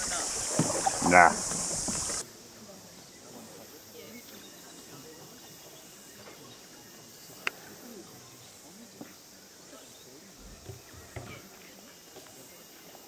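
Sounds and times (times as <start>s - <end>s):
distant voices murmuring: 0.0s - 2.2s
steady high hiss: 0.0s - 13.0s.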